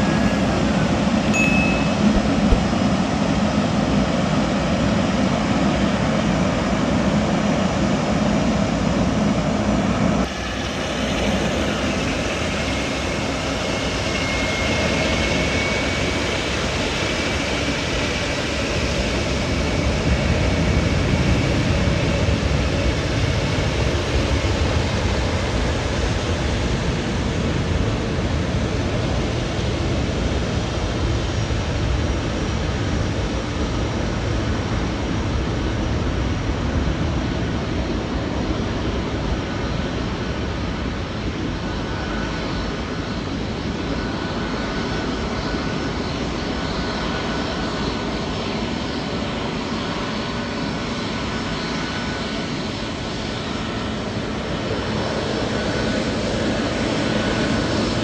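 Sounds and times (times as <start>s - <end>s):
jet engines rushing: 0.0s - 58.0s
faint high whine: 1.2s - 2.9s.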